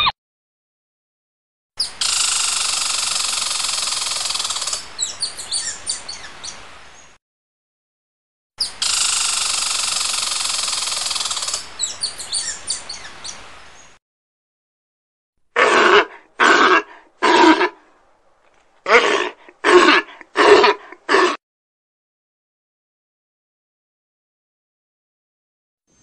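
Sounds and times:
harsh buzzing animal call: 15.6s - 17.8s, 18.9s - 21.4s.

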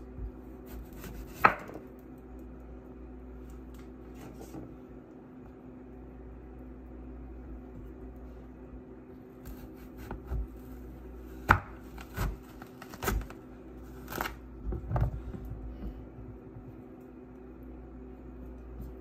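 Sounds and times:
knife slicing squash on wooden board: 0.6s - 1.8s, 9.4s - 10.7s.

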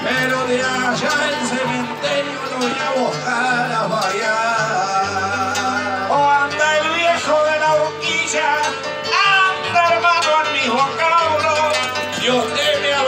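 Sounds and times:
acoustic guitar accompaniment: 0.0s - 13.0s
person singing: 0.0s - 13.0s.

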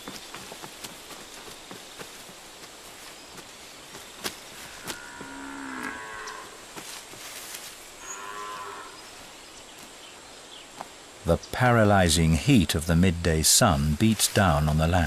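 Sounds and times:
cattle mooing: 4.7s - 6.6s, 8.0s - 9.0s.

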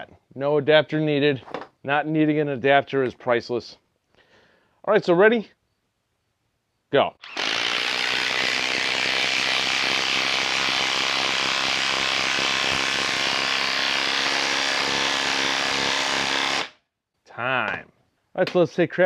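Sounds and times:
impact driver hammering screw into wood: 7.2s - 16.8s.

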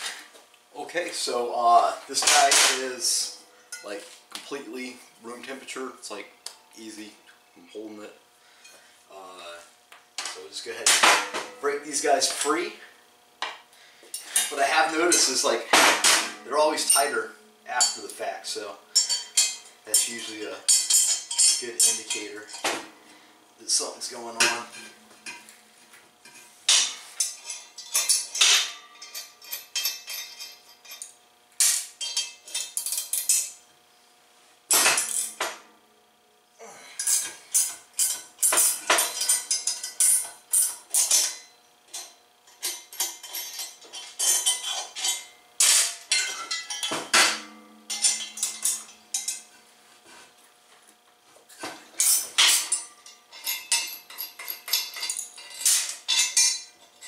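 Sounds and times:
metal tools and bolts clattering: 2.1s - 4.1s, 14.2s - 22.8s, 24.0s - 25.5s, 26.2s - 33.6s, 34.7s - 35.6s, 37.0s - 49.6s, 51.6s - 57.0s
clanks on steel table: 37.0s - 49.5s, 51.6s - 57.0s.

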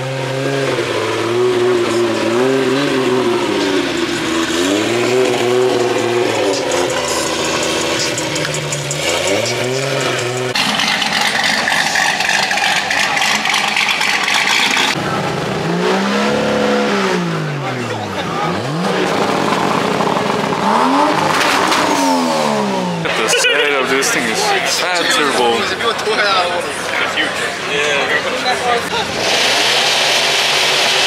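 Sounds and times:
car engine revving: 0.0s - 25.7s, 28.4s - 31.0s.

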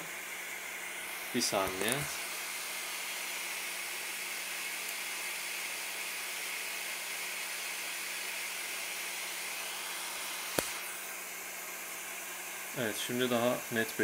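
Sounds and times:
fan-like hiss: 0.0s - 14.0s.

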